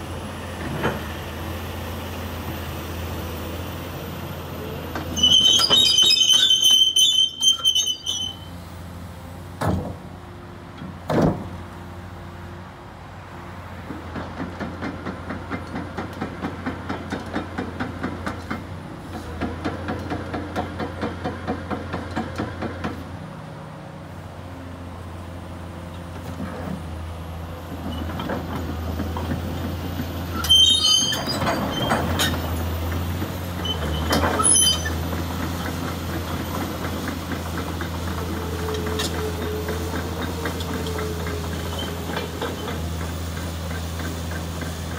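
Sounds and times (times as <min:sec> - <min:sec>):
steel tracks clanking: 0:04.6 - 0:08.5, 0:13.9 - 0:23.0, 0:27.6 - 0:44.9
metallic track squeals: 0:05.0 - 0:08.6, 0:30.2 - 0:35.2, 0:38.1 - 0:42.8
diesel engine running: 0:22.4 - 0:44.9.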